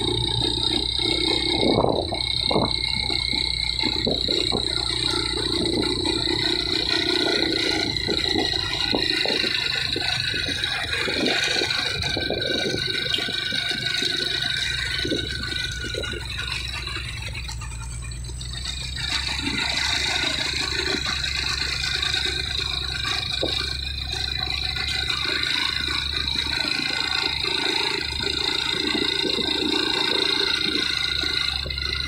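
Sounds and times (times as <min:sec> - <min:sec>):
wind buffeting microphone: 0:00.0 - 0:18.2
motorbike engines droning: 0:00.0 - 0:32.0
steady high whine: 0:00.0 - 0:32.0
truck labouring uphill: 0:00.0 - 0:32.0.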